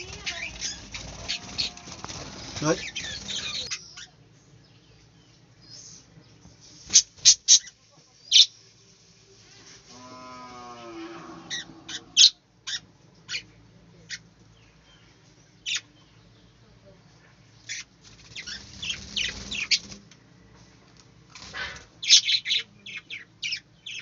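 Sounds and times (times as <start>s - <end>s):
budgerigars chirping: 0.1s - 4.1s, 22.0s - 24.0s.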